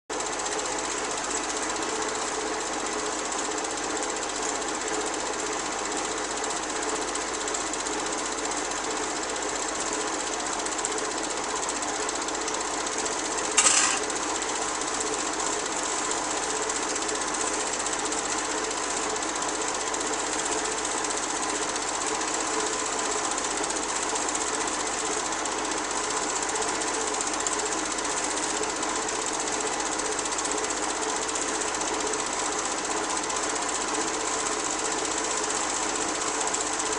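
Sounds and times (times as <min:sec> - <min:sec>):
film projector clatter: 0:00.1 - 0:36.9
sharp click: 0:13.6 - 0:14.2.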